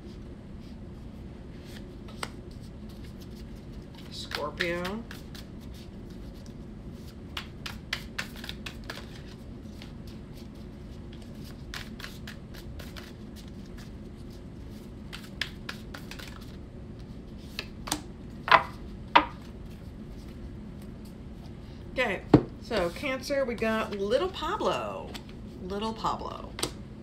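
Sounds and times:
cards being shuffled: 1.6 - 18.1.

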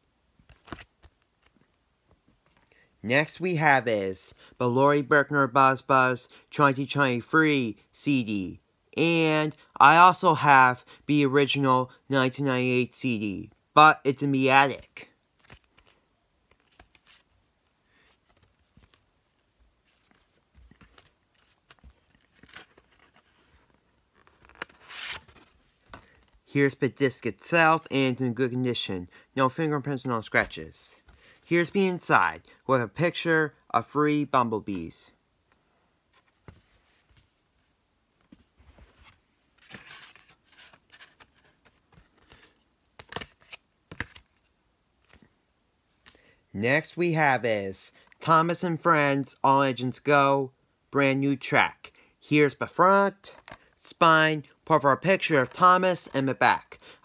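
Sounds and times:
cd case clicks and rustles: 0.4 - 1.7, 39.6 - 44.4
cardboard rustling and scraping: 19.8 - 26.4, 36.1 - 37.4, 38.2 - 44.4.

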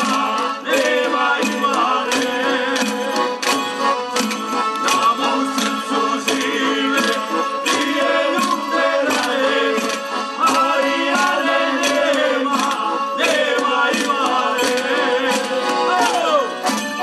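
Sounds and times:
accordion: 0.0 - 17.0
voices singing folk song: 0.0 - 17.0.

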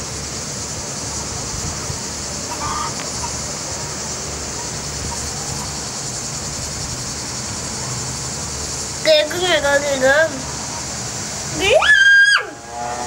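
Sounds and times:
cicada chorus drone: 0.0 - 13.0
wind rumble on microphone: 0.6 - 3.2.

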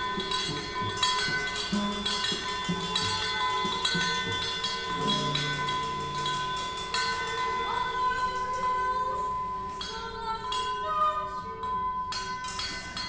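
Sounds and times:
held low chord: 0.0 - 8.2
flute high ringing tones: 0.0 - 13.0.

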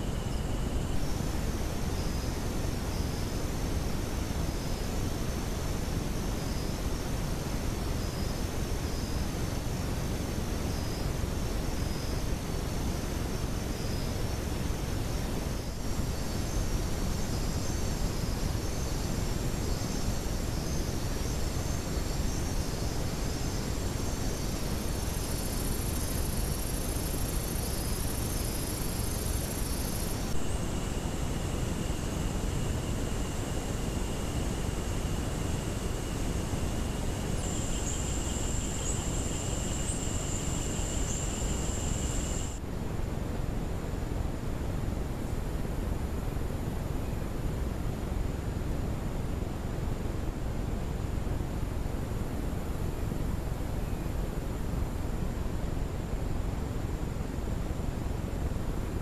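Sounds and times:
insects trilling: 0.0 - 42.6
constant hiss: 0.0 - 59.0
high insect buzz: 15.1 - 42.6.

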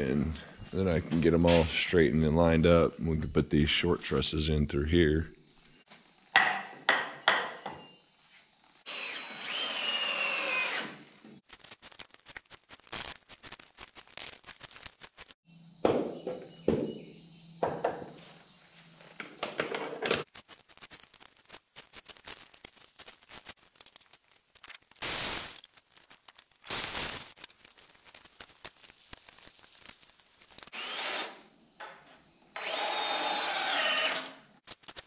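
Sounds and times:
cordless drill driving screws: 8.9 - 11.0, 30.7 - 31.4, 32.6 - 34.4
saw cutting wood: 8.9 - 11.0, 30.7 - 31.4, 32.6 - 34.4.

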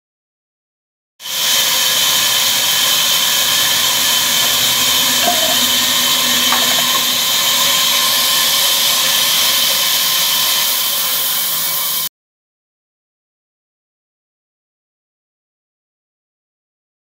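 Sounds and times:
band saw cutting timber: 1.3 - 12.1.

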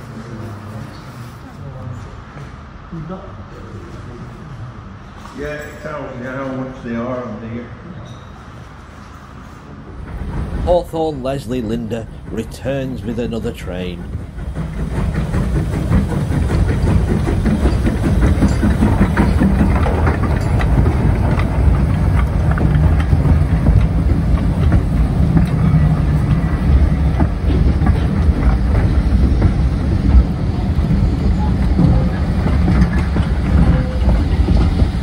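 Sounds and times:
steam train rumbling past: 0.0 - 35.0
wheels clicking over rail joints: 10.0 - 35.0.

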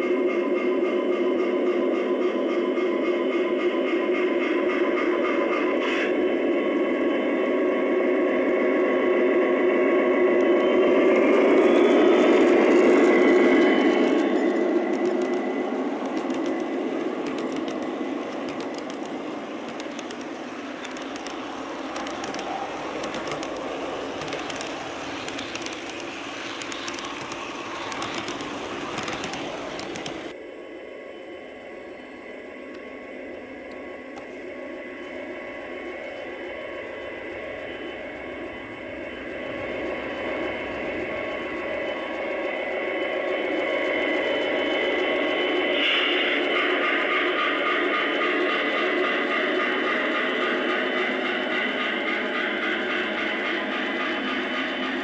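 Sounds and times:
model train wheels rumbling: 0.1 - 30.4, 31.8 - 55.0
simulated diesel engine sound: 2.8 - 30.4, 31.5 - 55.0
clicks over rail joints: 16.0 - 30.3.

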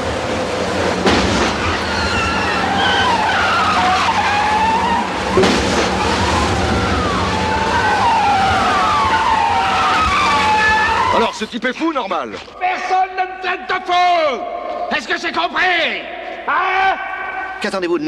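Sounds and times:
rushes of noise: 0.0 - 11.4
engine rumble: 0.0 - 12.6
car tyres squealing: 1.1 - 12.6.

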